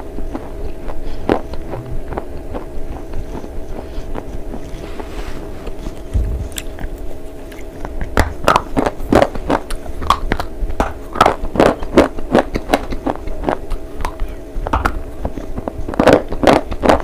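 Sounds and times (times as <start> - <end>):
chewing with sharp crunches: 0.0 - 17.0.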